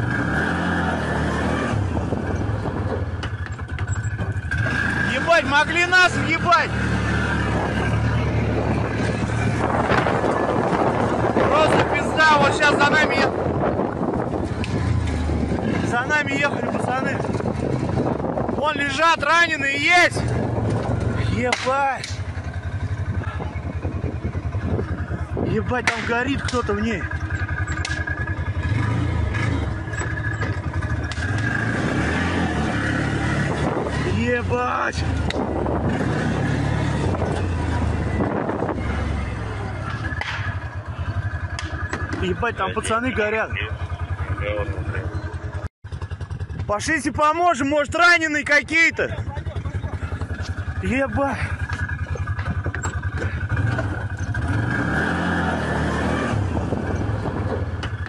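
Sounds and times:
vehicle clattering and scraping: 0.0 - 58.0
vehicle engine running: 0.0 - 58.0.

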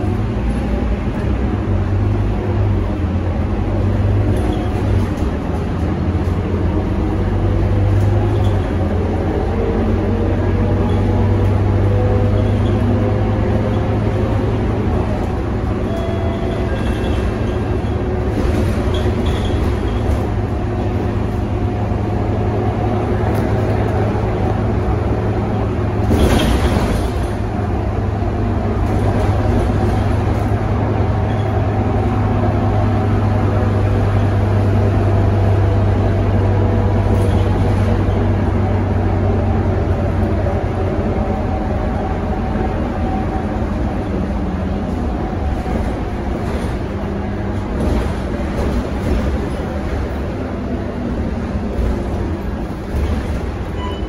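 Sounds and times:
bus engine hum: 0.0 - 54.0
road noise: 0.0 - 54.0.

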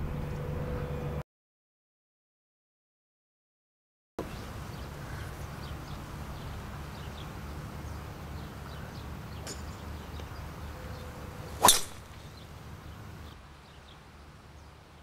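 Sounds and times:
golf club striking ball: 9.3 - 9.8, 11.5 - 12.4.

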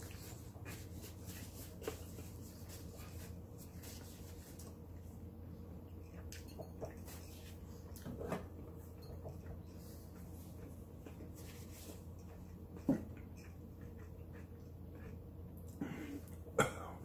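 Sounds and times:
man chewing: 9.0 - 16.5.

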